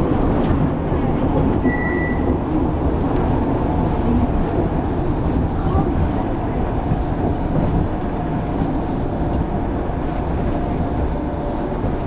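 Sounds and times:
monorail car low rumble: 0.0 - 12.0.

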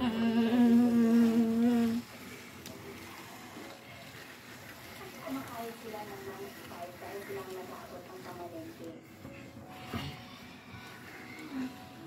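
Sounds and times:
person humming: 0.0 - 2.0
faint room noise: 0.0 - 12.0.

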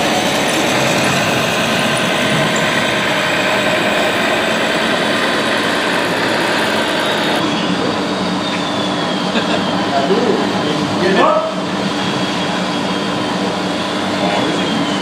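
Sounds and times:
truck diesel engine: 0.0 - 8.1.

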